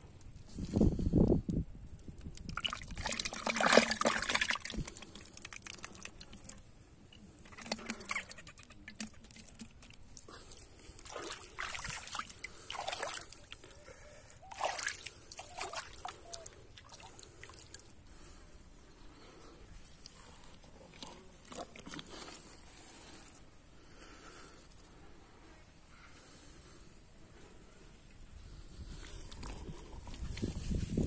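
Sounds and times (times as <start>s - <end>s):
wet mud squelching: 2.3s - 13.7s, 14.4s - 18.0s.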